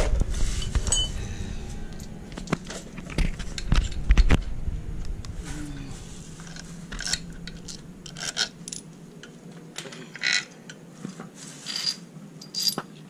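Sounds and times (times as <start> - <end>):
metallic tools clinking: 0.8 - 1.2, 6.5 - 8.9, 11.6 - 13.0.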